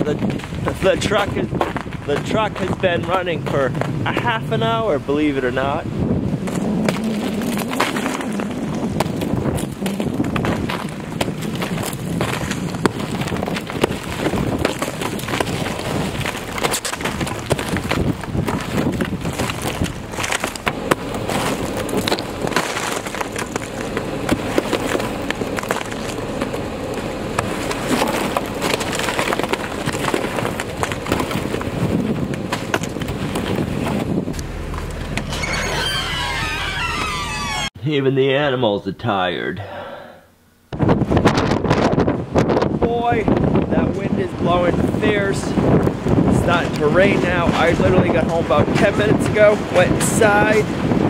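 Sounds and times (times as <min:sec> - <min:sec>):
wind noise: 0:00.0 - 0:37.8, 0:40.7 - 0:51.0
brush scraping ice off truck: 0:06.6 - 0:34.1.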